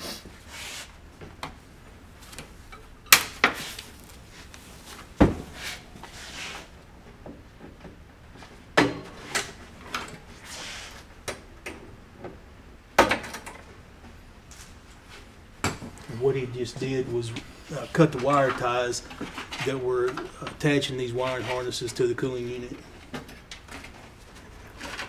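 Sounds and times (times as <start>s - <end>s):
scraping and rustling: 3.5s - 6.8s.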